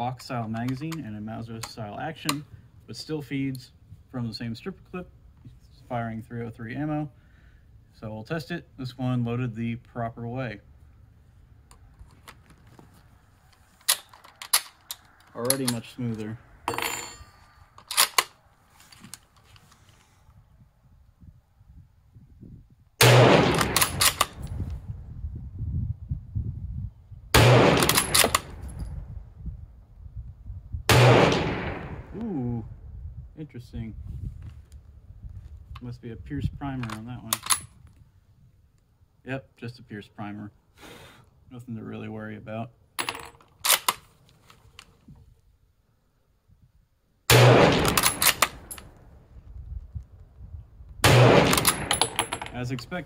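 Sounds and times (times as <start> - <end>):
rifle bolt clicks: 13.8 - 16.2, 17.8 - 18.4, 23.2 - 24.5, 27.6 - 28.6, 36.8 - 37.7, 43.0 - 44.1, 47.3 - 49.0, 51.1 - 52.5
rifle shots: 23.0 - 24.4, 27.4 - 28.6, 30.9 - 32.2, 47.3 - 48.9, 51.0 - 52.5.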